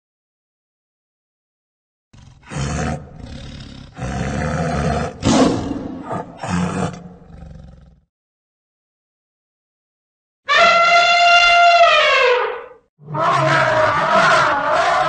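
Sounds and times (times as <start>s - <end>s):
tiger roaring: 2.2s - 8.1s, 13.0s - 15.0s.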